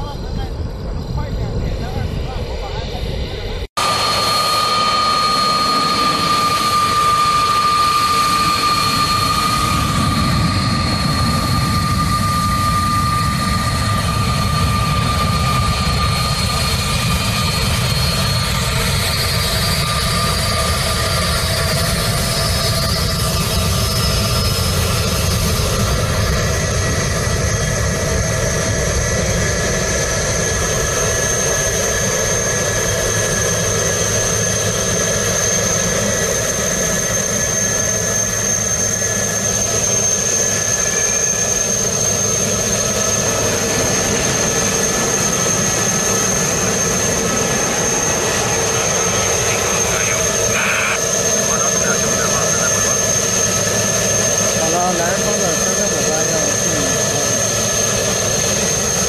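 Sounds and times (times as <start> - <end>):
jet engines running: 0.0 - 59.0.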